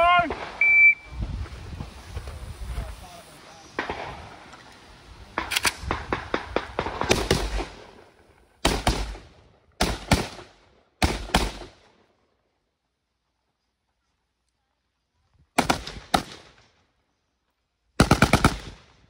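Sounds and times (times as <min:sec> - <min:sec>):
rifle shots: 0:03.8 - 0:04.4, 0:05.3 - 0:11.9, 0:15.6 - 0:16.6, 0:18.0 - 0:19.0.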